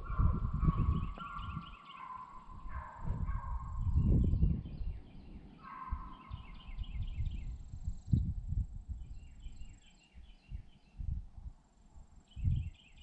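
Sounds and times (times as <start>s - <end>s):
hounds baying: 0.0s - 4.0s, 5.6s - 6.8s
low rumbling gusts: 0.0s - 12.8s.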